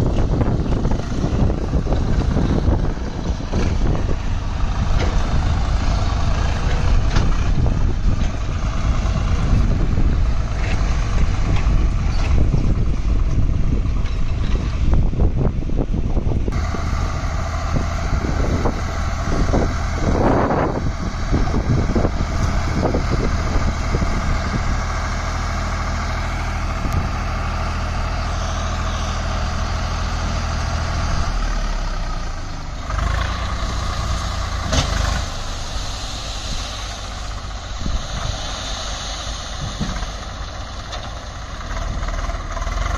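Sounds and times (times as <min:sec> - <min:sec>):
tractor diesel engine running: 0:00.0 - 0:42.9
knocks and clunks: 0:34.6 - 0:35.2.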